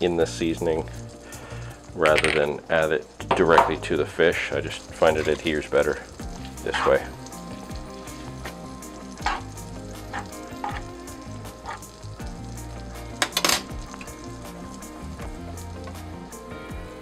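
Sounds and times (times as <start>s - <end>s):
butter sizzling in frying pan: 0.0s - 17.0s
fork scraping pan: 11.6s - 11.9s.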